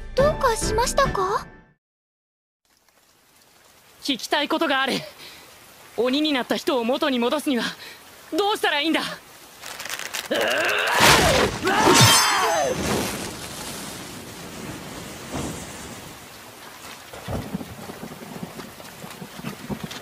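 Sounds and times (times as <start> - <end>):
snarling scream: 10.3 - 12.8
sword slash ringing: 11.8 - 12.8
steady hiss: 12.7 - 16.8.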